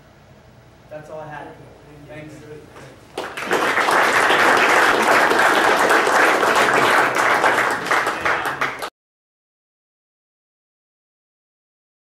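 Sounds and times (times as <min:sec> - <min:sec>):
audience applauding: 0:03.2 - 0:08.9.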